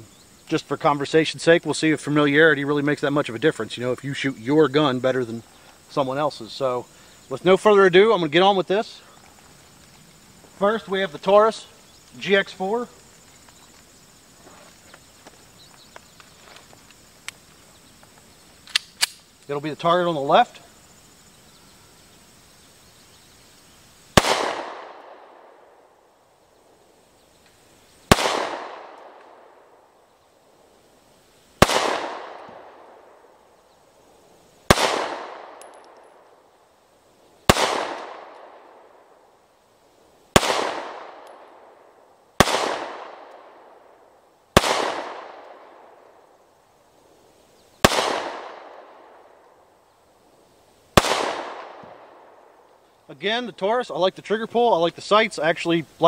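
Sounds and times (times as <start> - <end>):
pistol shots with echo: 24.2 - 25.8, 28.1 - 29.6, 31.6 - 33.2, 34.7 - 36.1, 37.5 - 39.0, 40.3 - 41.7, 42.4 - 43.8, 44.6 - 46.0, 47.8 - 49.2, 51.0 - 52.4.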